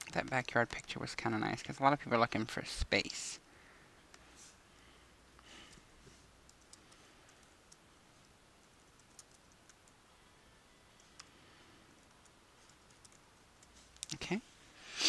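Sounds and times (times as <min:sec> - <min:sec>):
keyboard typing: 0:06.4 - 0:07.8, 0:08.6 - 0:10.0, 0:12.0 - 0:14.1.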